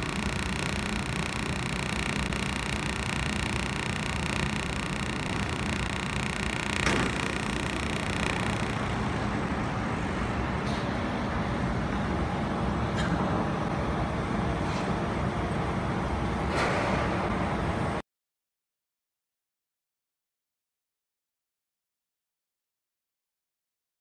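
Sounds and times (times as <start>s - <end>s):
sharp machine clicks: 0.0s - 9.2s
steady machine hum: 0.0s - 12.9s.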